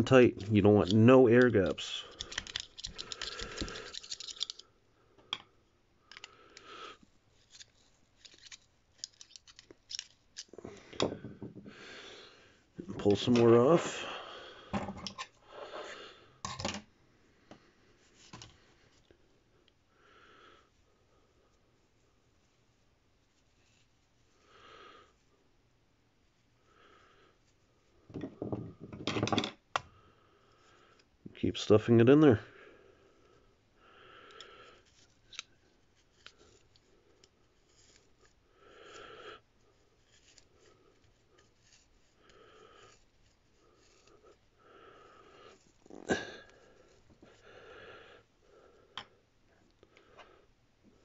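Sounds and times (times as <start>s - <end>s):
scratchy rustling of metal wool: 0.0s - 4.6s, 7.0s - 10.6s, 21.5s - 24.4s, 34.6s - 47.4s
scratchy wire wool rustling: 39.7s - 47.4s.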